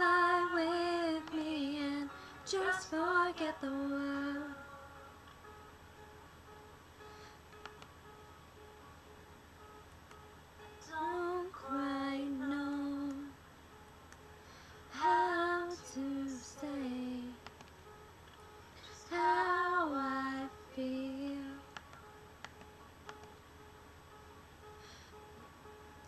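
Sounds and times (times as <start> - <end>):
woman singing sliding phrases: 0.0 - 5.2, 10.9 - 13.4, 14.9 - 17.4, 18.8 - 21.7.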